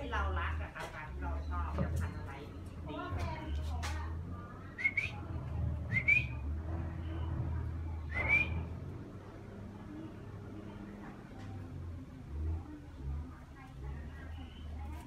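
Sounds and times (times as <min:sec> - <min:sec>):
person whistling to a dog: 0:05.9 - 0:06.4, 0:08.1 - 0:08.7.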